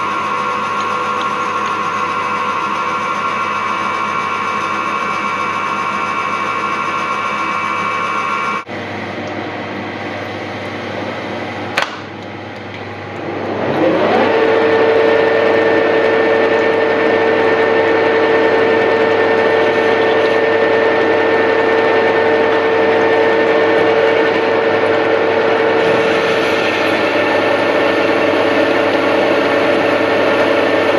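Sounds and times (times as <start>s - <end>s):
metal lathe whining: 0.0s - 8.7s, 12.8s - 30.9s
lathe switch click: 11.8s - 12.7s.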